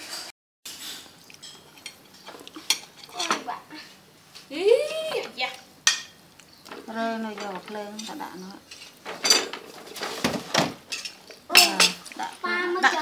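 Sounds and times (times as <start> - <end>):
dishes and utensils clinking: 0.0 - 3.5, 5.9 - 12.1.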